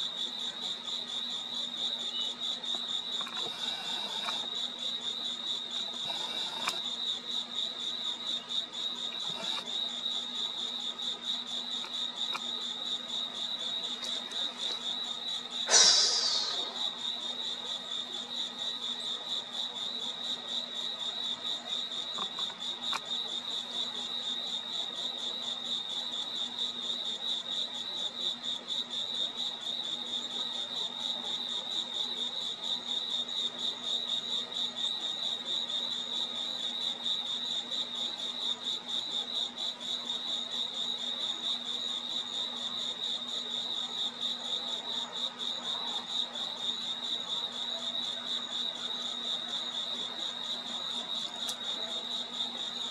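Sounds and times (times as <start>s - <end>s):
crickets chirping: 0.0s - 52.9s.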